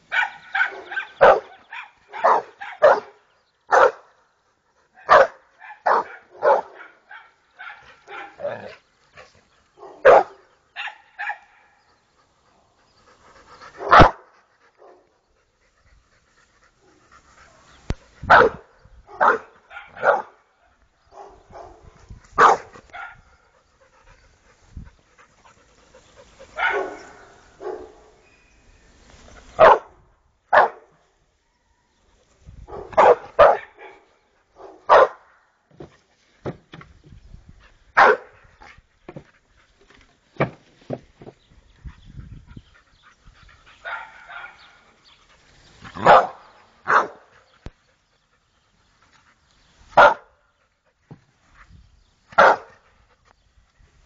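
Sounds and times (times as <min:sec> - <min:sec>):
dog barking sharply: 0:00.1 - 0:03.1, 0:09.8 - 0:11.4, 0:13.8 - 0:14.2, 0:18.3 - 0:18.6, 0:19.2 - 0:20.3, 0:22.4 - 0:23.2, 0:26.6 - 0:27.0, 0:29.6 - 0:29.9, 0:32.7 - 0:33.9, 0:34.6 - 0:35.2, 0:38.0 - 0:38.3, 0:46.0 - 0:47.2, 0:50.0 - 0:50.2, 0:52.4 - 0:52.7.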